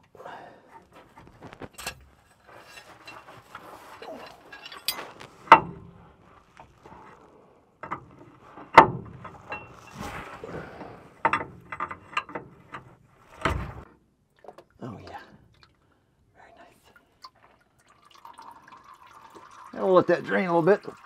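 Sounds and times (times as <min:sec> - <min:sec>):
tools clinking on metal: 0:01.8 - 0:05.8.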